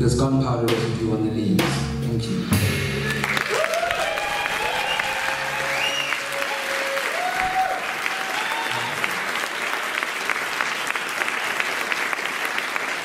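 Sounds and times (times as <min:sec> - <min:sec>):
audience applauding: 0:03.0 - 0:13.0.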